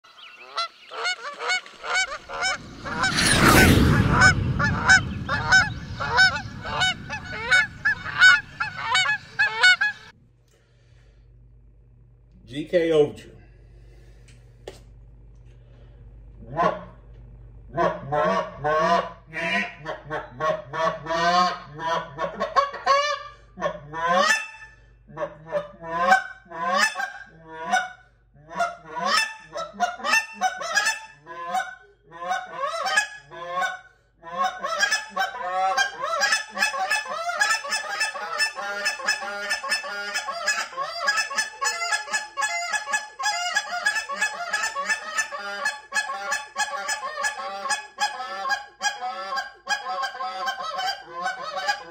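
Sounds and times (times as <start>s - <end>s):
goose call honks: 4.1s - 10.1s, 16.4s - 17.0s, 17.7s - 51.9s.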